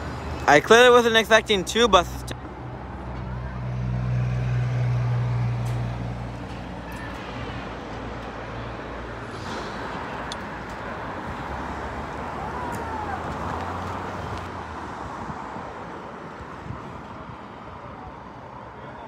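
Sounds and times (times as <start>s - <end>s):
tyre and traffic noise: 0.0s - 19.0s
bus engine hum: 1.7s - 14.6s.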